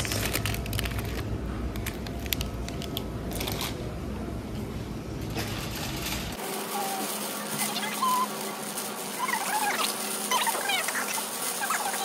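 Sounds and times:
mesh bags crinkling: 0.0 - 2.4.

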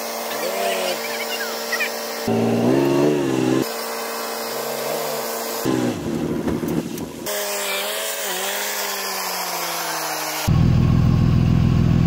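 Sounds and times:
heavy diesel engines running: 0.0 - 7.2.

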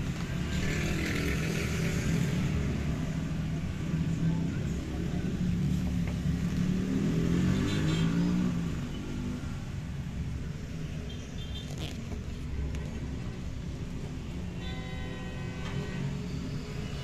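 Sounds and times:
vehicle engine revving: 5.7 - 8.8.

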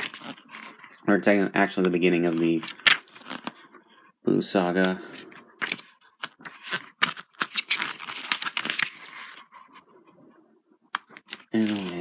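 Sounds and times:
book pages turning: 0.0 - 1.1, 1.7 - 3.8, 4.8 - 9.8, 10.9 - 12.0.

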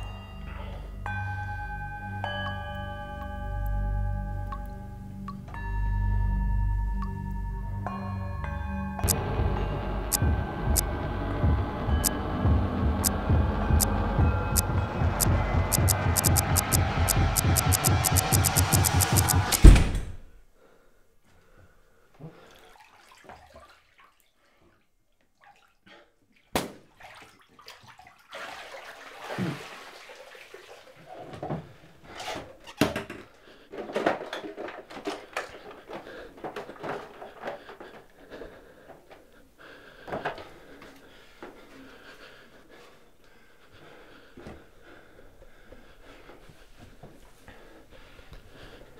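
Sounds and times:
knocks and clicks: 9.0 - 20.1
water sloshing in a bathtub: 22.1 - 39.4.

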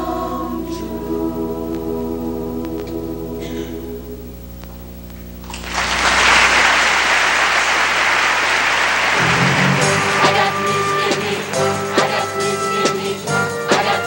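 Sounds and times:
audience applause: 5.5 - 12.2
choir holding final chord: 9.0 - 14.0.

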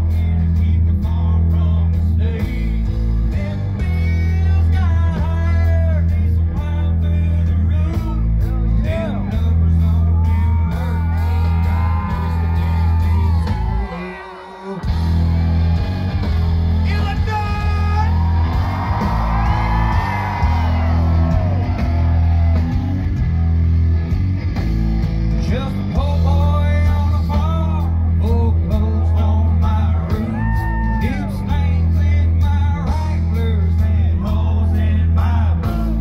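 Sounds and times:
man singing and rapping: 0.0 - 11.1, 16.8 - 18.2, 25.4 - 30.4, 31.0 - 36.0
bass-heavy backing track: 0.0 - 36.0.

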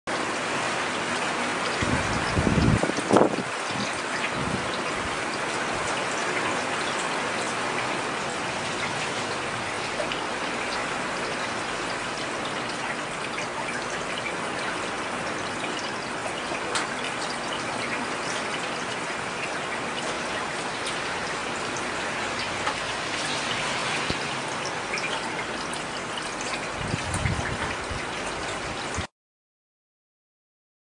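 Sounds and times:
heavy rain falling: 0.1 - 29.1
raindrops ticking nearby: 0.1 - 29.1.

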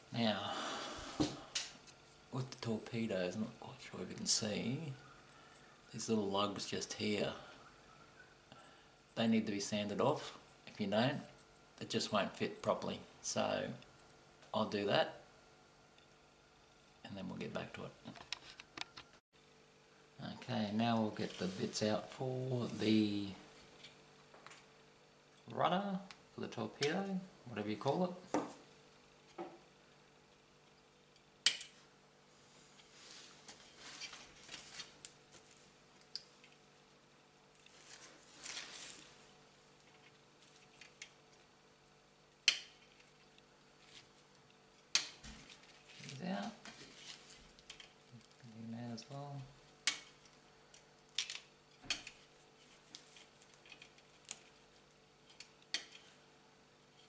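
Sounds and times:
plastic sprue rustling: 37.6 - 39.3.

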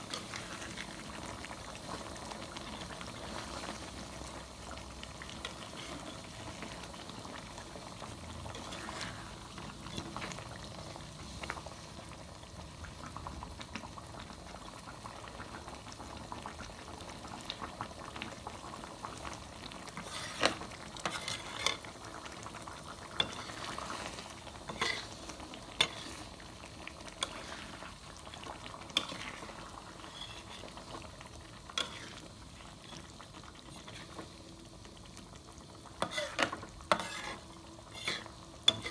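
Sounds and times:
curry bubbling in a wok: 0.0 - 38.9
wooden spatula scraping a pan: 5.4 - 6.3, 8.5 - 10.4, 20.0 - 21.9, 23.2 - 26.4, 27.2 - 27.9, 28.9 - 31.0, 31.7 - 32.3, 36.0 - 38.9.

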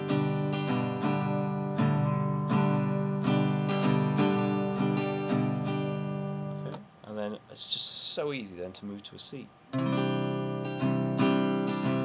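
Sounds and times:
acoustic guitar strumming: 0.0 - 6.9, 9.7 - 12.0.

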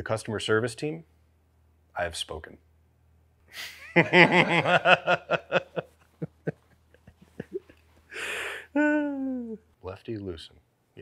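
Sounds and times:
person laughing: 3.7 - 9.6.

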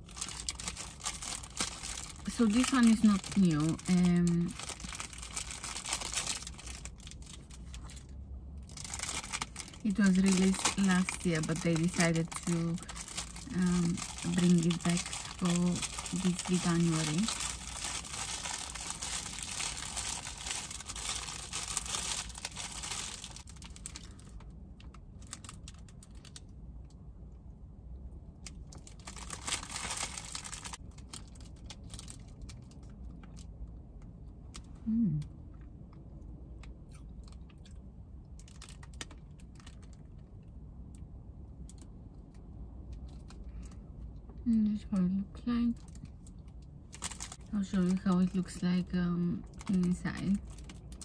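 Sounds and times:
plastic packet crinkling: 0.0 - 26.5, 28.4 - 33.5, 38.4 - 40.3, 45.8 - 48.6, 49.4 - 51.0
low hum of voice: 34.8 - 35.3.

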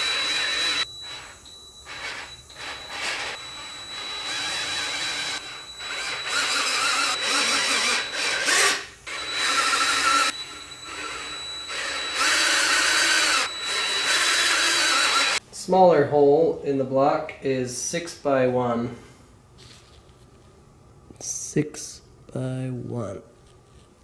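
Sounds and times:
handheld power tool running: 0.0 - 15.4.

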